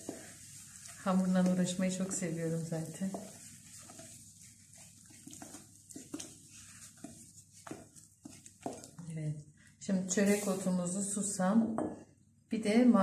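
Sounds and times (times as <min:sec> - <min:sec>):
spoon scraping dough in bowl: 0:00.0 - 0:09.1.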